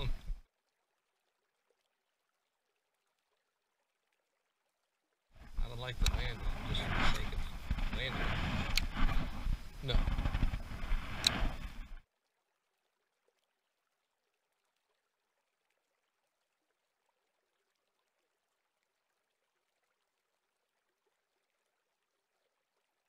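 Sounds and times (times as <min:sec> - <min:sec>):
faint hiss: 0:05.4 - 0:12.0.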